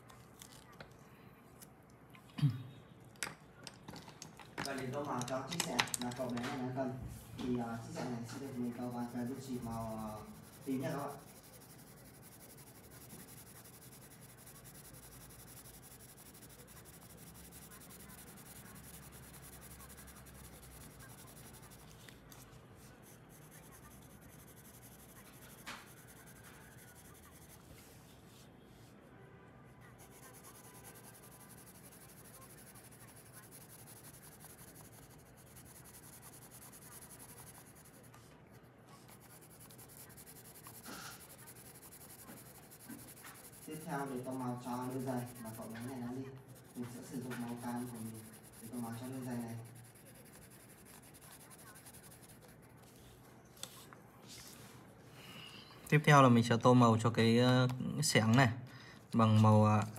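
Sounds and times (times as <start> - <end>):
pencil scratching on paper: 6.2 - 28.5, 29.8 - 54.7.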